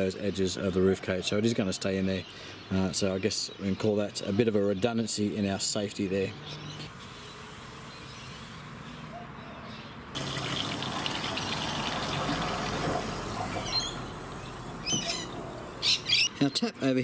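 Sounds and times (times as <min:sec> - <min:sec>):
hose water rushing into tank: 0:10.2 - 0:15.4
bird chirps: 0:13.3 - 0:16.8.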